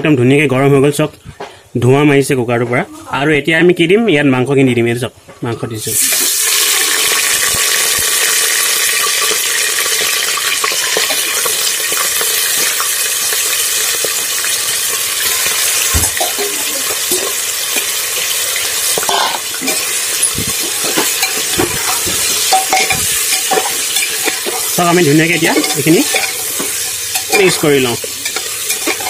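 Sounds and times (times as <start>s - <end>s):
meat sizzling in hot oil: 5.9s - 29.0s
metal spatula knocking on pot: 20.6s - 24.7s, 25.5s - 29.0s.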